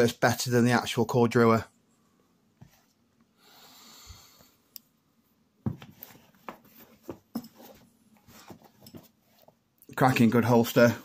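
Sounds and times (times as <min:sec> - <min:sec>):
soft breath-like hiss: 0:03.4 - 0:04.6
handling clicks and rustles: 0:05.7 - 0:11.0.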